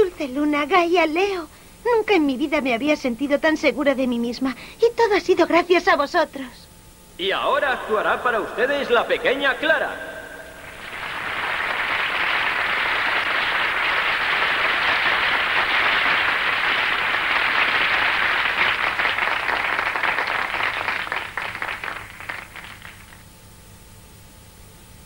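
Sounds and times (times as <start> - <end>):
audience applauding: 7.6 - 23.3.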